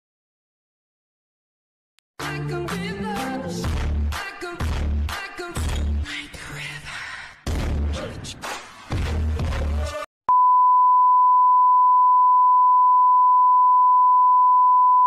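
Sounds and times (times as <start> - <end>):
music: 2.2 - 6.4, 7.5 - 10.0
steady test tone beep: 10.3 - 15.0.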